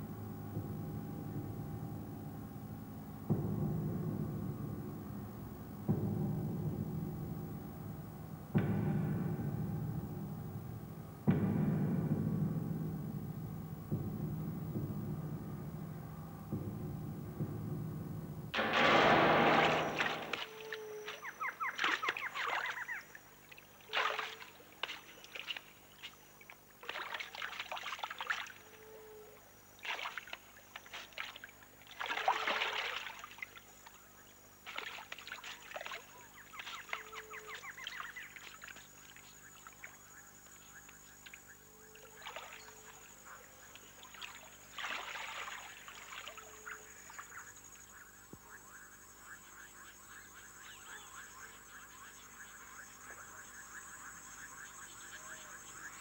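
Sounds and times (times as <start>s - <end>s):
water splashing: 18.6s - 28.8s, 29.8s - 34.0s, 34.6s - 40.0s, 42.0s - 47.3s.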